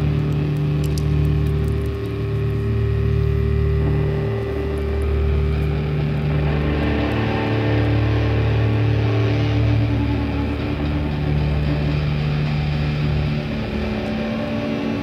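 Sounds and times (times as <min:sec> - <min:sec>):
distorted guitar chords droning: 0:00.0 - 0:15.0.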